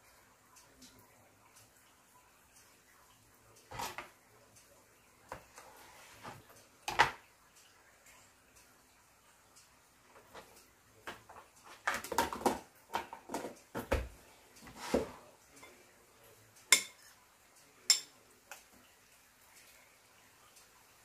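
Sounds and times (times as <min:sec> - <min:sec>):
dishes and cutlery clattering: 0:03.7 - 0:04.1, 0:06.2 - 0:07.2, 0:10.2 - 0:15.8, 0:16.7 - 0:17.1, 0:17.9 - 0:18.2.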